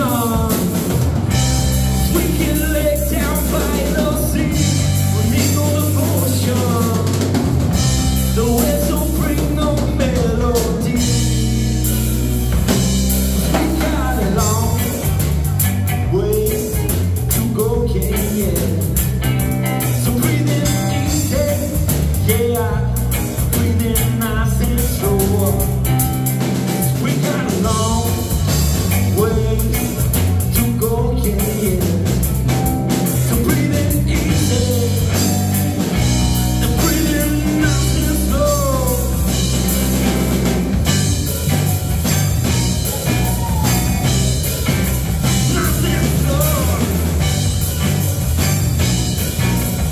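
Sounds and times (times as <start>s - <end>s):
drum kit beat: 0.0s - 49.9s
electric bass: 0.0s - 49.9s
electric guitar: 0.0s - 49.9s.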